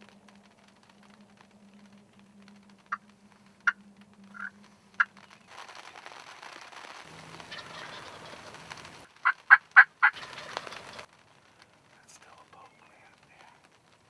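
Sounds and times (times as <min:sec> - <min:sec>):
soft rustling hiss: 0:00.0 - 0:14.0
wild turkey yelping: 0:03.6 - 0:05.1, 0:07.4 - 0:08.6, 0:09.2 - 0:11.1.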